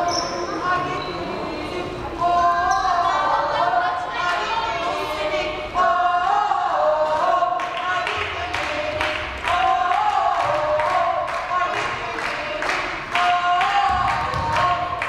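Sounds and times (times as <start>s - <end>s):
group singing a chant: 0.0s - 15.0s
hand claps: 7.1s - 15.0s.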